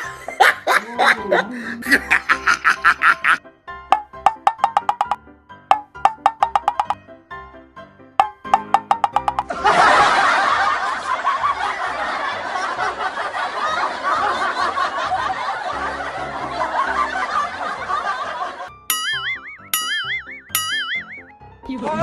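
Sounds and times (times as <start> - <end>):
laugh track: 0.0 - 3.4, 9.4 - 21.2
light background music: 0.0 - 13.6, 14.2 - 22.0
wood-block-like music notes: 2.2 - 7.0, 8.2 - 9.6, 18.9 - 21.4
wobbly cartoon boing: 4.0 - 7.0, 8.2 - 9.5, 18.9 - 21.3.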